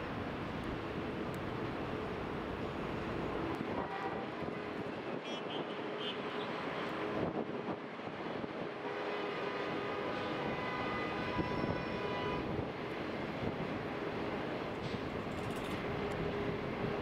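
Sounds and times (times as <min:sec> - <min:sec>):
train wheels rumbling on track: 0:06.5 - 0:17.0.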